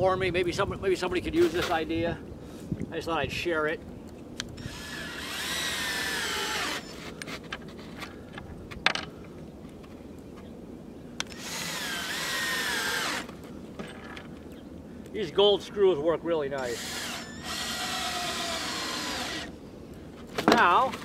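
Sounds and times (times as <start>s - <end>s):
cordless drill driving screws: 4.6s - 7.2s, 11.3s - 13.4s, 16.6s - 19.6s.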